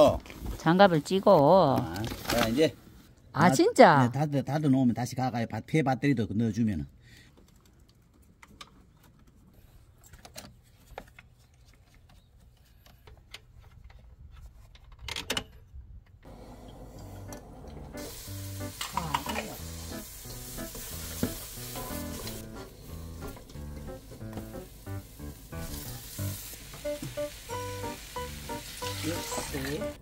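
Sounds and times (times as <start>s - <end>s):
soft background music: 16.5s - 30.0s
food sizzling in a pot: 17.8s - 30.0s.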